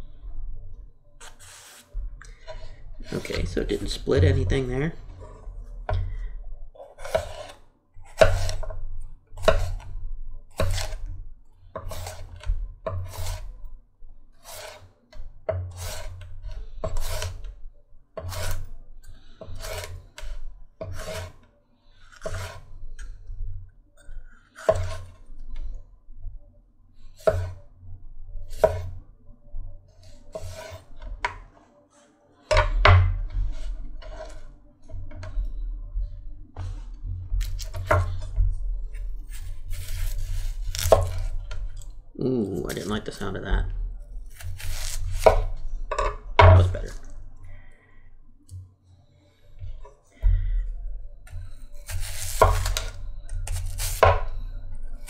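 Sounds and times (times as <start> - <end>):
knife slicing pepper on board: 7.0 - 8.6, 9.4 - 9.8, 10.6 - 11.0, 11.8 - 13.5, 14.4 - 14.9, 15.7 - 17.4, 18.2 - 18.7, 19.5 - 21.4, 22.2 - 22.6, 24.6 - 25.1, 27.2 - 27.6, 30.3 - 30.8, 39.3 - 41.3, 44.3 - 45.5, 51.8 - 54.3.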